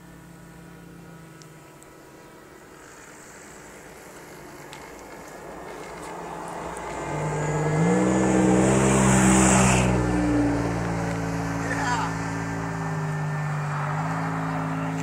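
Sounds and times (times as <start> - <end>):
model airplane engine: 0.0 - 7.9.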